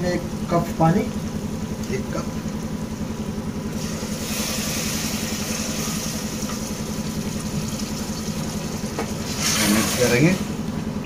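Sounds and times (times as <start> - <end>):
low pulsing hum: 0.0 - 11.0
water hissing in hot pot: 3.8 - 10.4.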